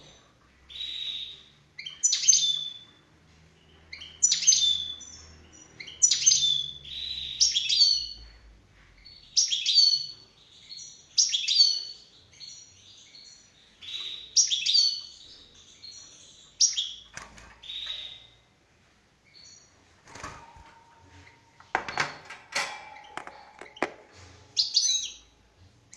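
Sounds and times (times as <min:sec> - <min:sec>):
goldfinch singing: 0:22.9 - 0:25.4.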